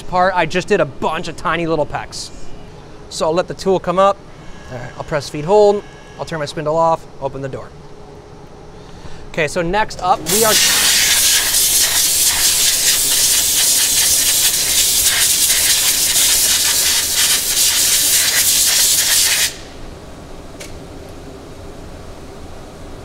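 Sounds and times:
compressed air blow gun hissing: 0:10.2 - 0:19.8.

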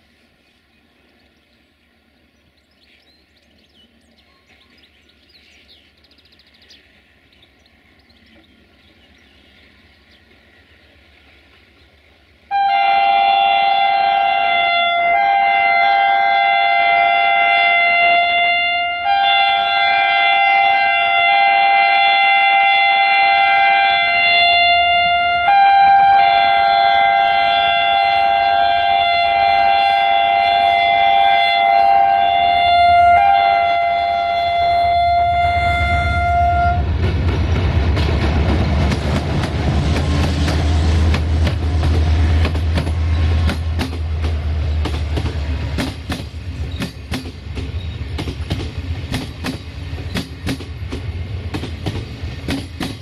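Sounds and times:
locomotive air horn blasts: 0:12.5 - 0:37.0.

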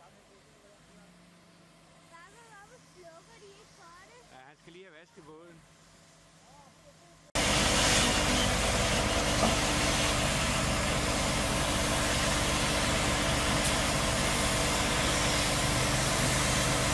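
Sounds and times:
crane engine running: 0:05.6 - 0:16.9.

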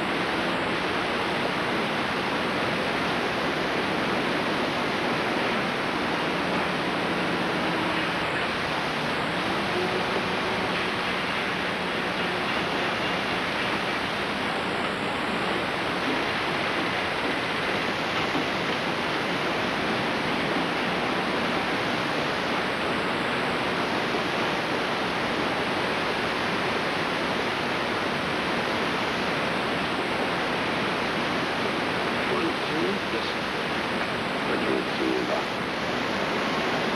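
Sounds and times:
videotape static hiss: 0:00.0 - 0:36.9.

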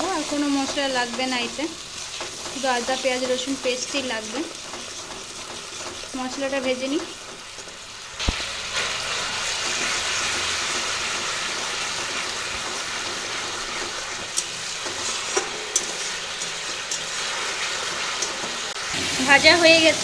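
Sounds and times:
paste sizzling in hot oil: 0:00.0 - 0:20.0
metal spatula tapping pan: 0:14.3 - 0:17.2.

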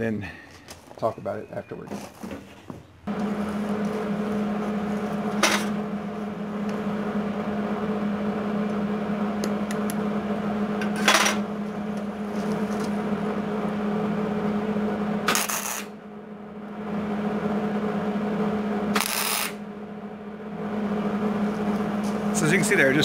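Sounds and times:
welder humming: 0:03.1 - 0:23.0
welding arc crackling: 0:15.2 - 0:16.0, 0:18.9 - 0:19.6.

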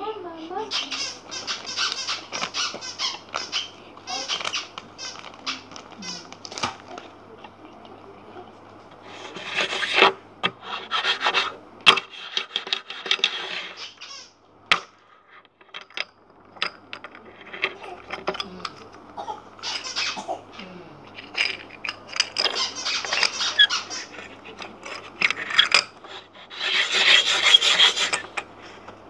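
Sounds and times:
packaging rustling: 0:01.4 - 0:07.2.

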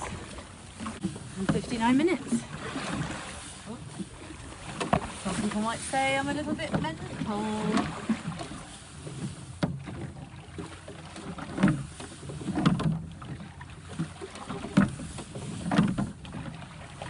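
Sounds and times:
oar knock and splash: 0:00.0 - 0:17.0
water washing: 0:00.0 - 0:17.0.

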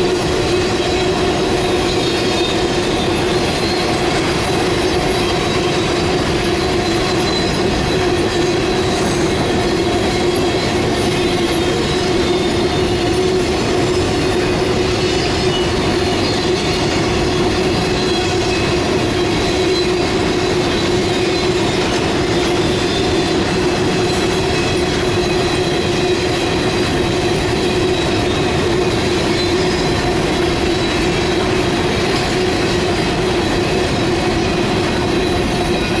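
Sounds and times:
high wheel squeal: 0:00.0 - 0:36.0
train wheels rumbling on rail: 0:00.0 - 0:36.0.

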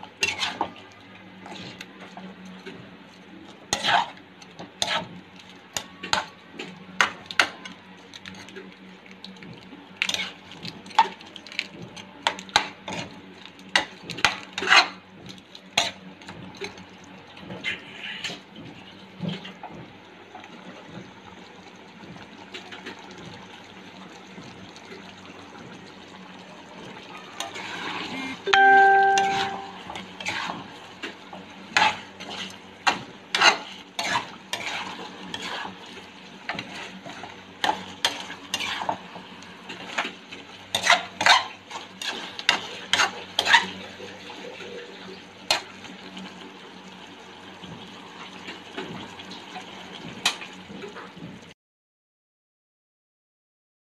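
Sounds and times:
metal spoon scraping pan: 0:00.2 - 0:00.7, 0:03.7 - 0:04.2, 0:14.6 - 0:15.0, 0:33.3 - 0:35.8, 0:36.5 - 0:39.0, 0:40.7 - 0:43.8.

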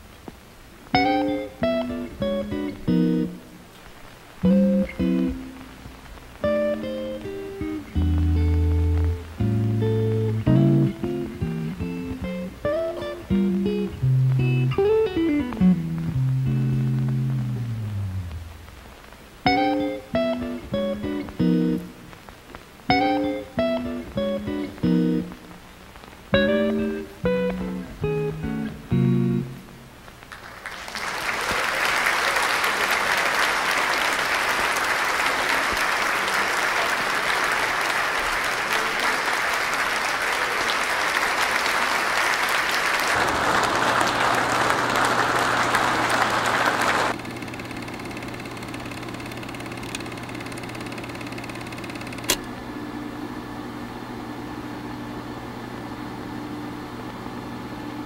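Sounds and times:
low steady hum: 0:00.0 - 0:30.2
plucked guitar notes: 0:00.9 - 0:03.6, 0:04.4 - 0:22.1, 0:22.9 - 0:25.6, 0:26.3 - 0:29.9
sharp click: 0:47.2 - 0:52.5.

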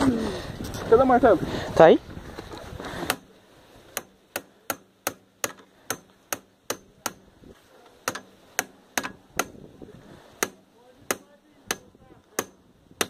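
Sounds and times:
hammer striking metal: 0:04.0 - 0:07.3, 0:08.0 - 0:09.6.

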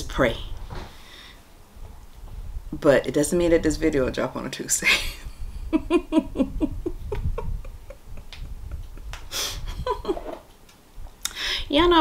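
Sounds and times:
woman laughing: 0:04.8 - 0:10.4.

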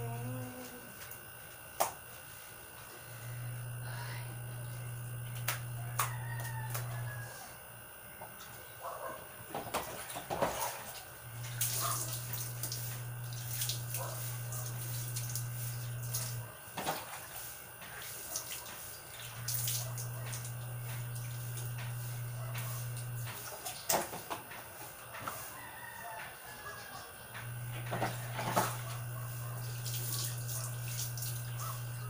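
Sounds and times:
low steady hum: 0:00.0 - 0:17.4, 0:19.1 - 0:23.8, 0:27.3 - 0:32.0
water poured splashing on concrete: 0:11.5 - 0:15.5, 0:29.8 - 0:31.4.

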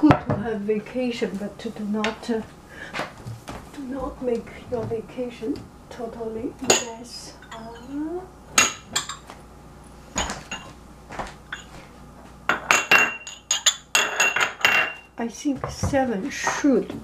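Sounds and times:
glass jars clinking: 0:06.7 - 0:08.0, 0:08.6 - 0:09.3, 0:12.5 - 0:15.0.

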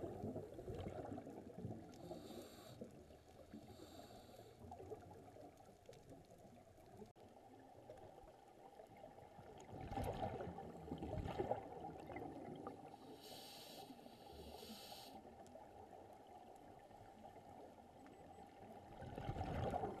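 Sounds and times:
gurgling regulator bubbles: 0:00.0 - 0:06.9, 0:08.7 - 0:13.5, 0:18.4 - 0:20.0.

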